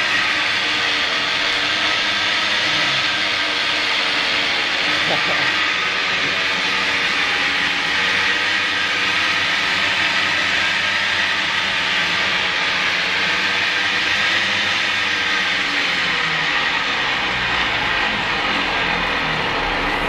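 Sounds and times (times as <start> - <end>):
pedal-powered blender whirring: 0.0 - 20.0.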